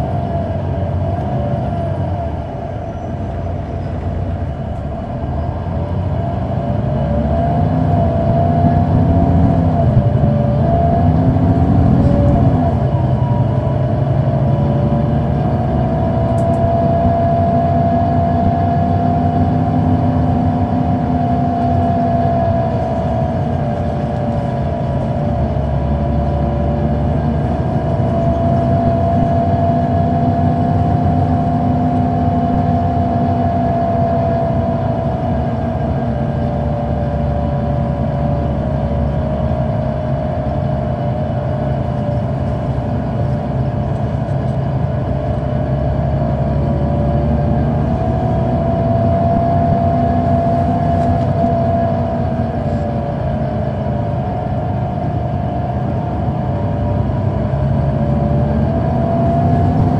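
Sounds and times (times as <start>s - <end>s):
bus engine low rumble: 0.0s - 59.9s
transmission whine: 0.0s - 59.9s.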